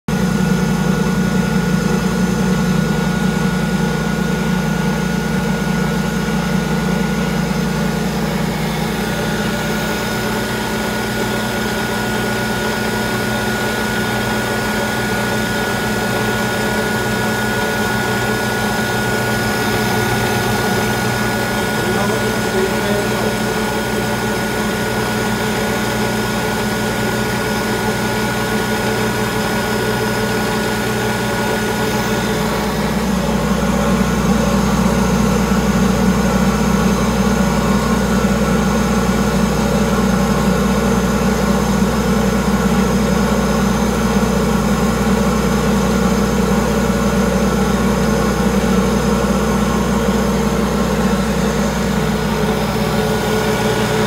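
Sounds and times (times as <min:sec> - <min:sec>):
sugar grinding mill humming: 0:05.6 - 0:39.9, 0:46.3 - 0:54.0.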